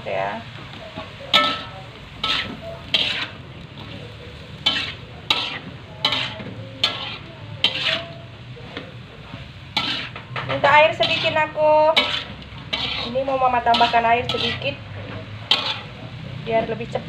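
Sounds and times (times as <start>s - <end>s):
food sizzling: 0.0s - 17.0s
spatula scraping wok: 0.0s - 17.0s.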